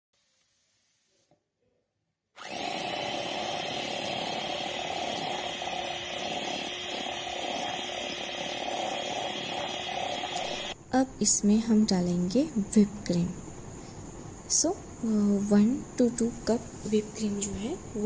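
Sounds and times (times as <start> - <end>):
electric hand mixer running: 2.4 - 10.8.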